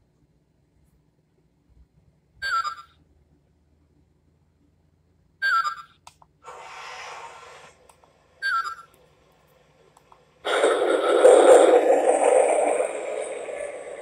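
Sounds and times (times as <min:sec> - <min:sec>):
locomotive hiss: 0:06.4 - 0:08.4, 0:09.1 - 0:14.0.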